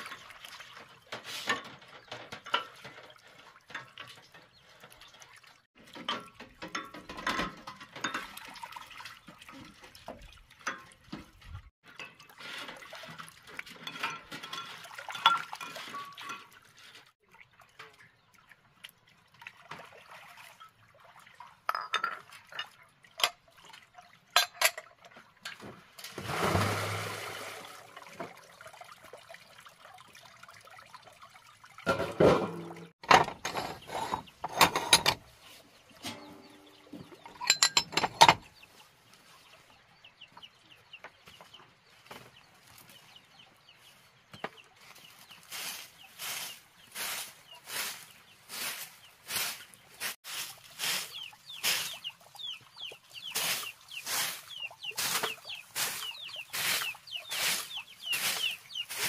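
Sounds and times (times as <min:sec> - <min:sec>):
clinks and knocks: 0:01.1 - 0:04.6, 0:05.9 - 0:08.4, 0:13.7 - 0:16.6, 0:21.7 - 0:23.4, 0:24.4 - 0:25.6, 0:31.9 - 0:35.3, 0:36.0 - 0:38.5
water splashing: 0:08.0 - 0:24.3, 0:25.9 - 0:33.0, 0:45.5 - 0:59.0
chickens clucking: 0:50.9 - 0:59.0.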